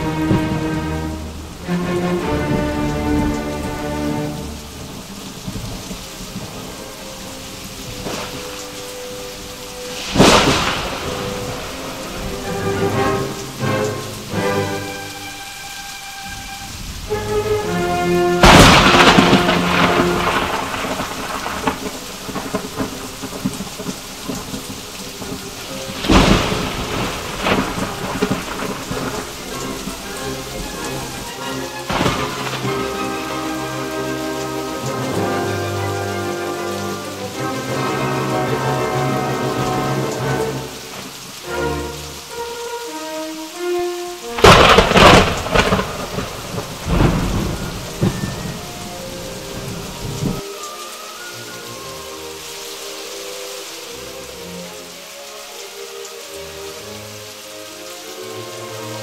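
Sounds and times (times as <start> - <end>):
thunderclap: 0.0 - 15.0, 16.3 - 37.0, 44.4 - 50.4
heavy rain pouring: 0.0 - 59.0.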